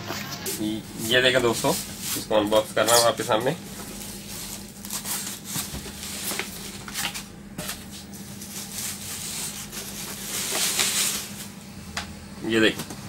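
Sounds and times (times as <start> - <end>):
bubble wrap rustling and crinkling: 0.0 - 11.6.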